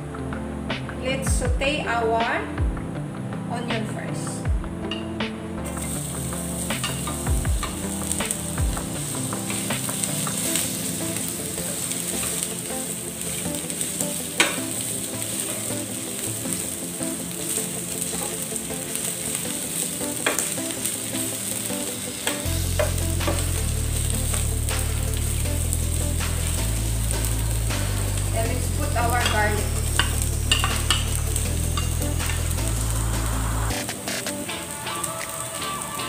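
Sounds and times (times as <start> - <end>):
onion sizzling in oil: 5.7 - 33.9.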